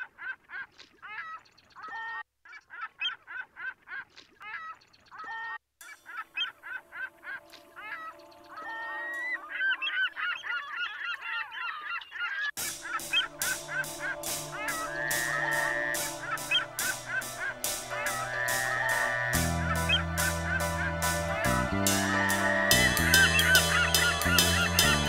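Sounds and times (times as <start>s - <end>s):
looped rising and falling calls: 5.2s - 25.0s
steady low drone: 12.6s - 25.0s.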